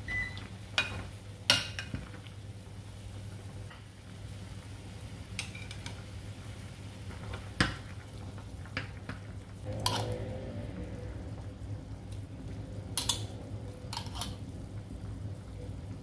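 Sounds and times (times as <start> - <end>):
steady low hum: 9.4 - 16.0.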